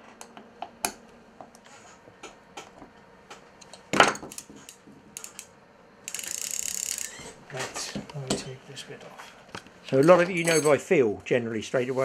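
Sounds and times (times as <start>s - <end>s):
fishing reel parts clicking: 6.1s - 7.2s.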